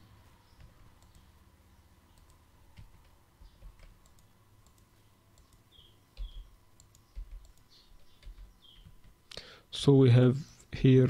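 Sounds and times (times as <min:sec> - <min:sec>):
computer mouse clicks: 0:00.6 - 0:01.3, 0:02.1 - 0:09.2
keyboard keystrokes: 0:06.2 - 0:09.2.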